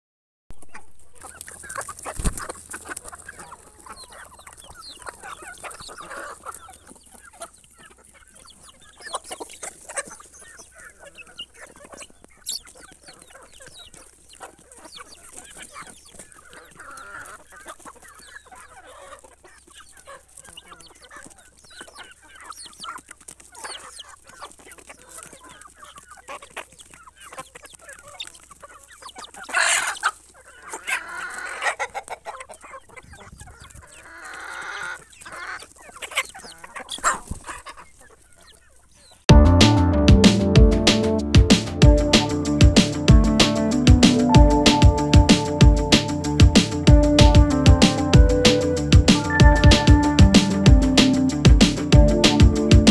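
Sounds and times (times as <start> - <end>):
hens clucking: 0.5 - 52.9.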